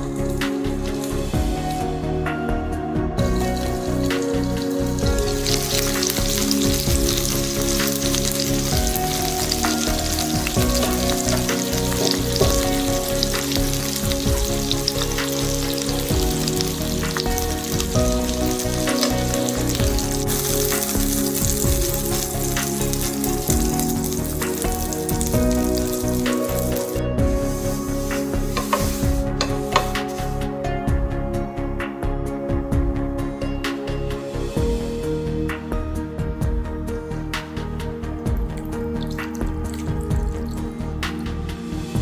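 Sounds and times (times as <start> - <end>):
pork sizzling in a frying pan: 3.3 - 30.3, 38.4 - 40.7.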